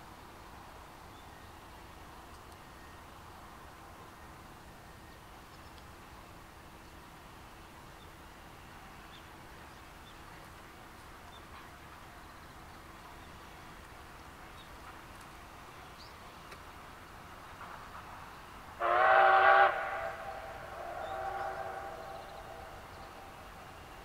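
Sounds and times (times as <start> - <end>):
steam locomotive whistle: 18.8 - 23.4.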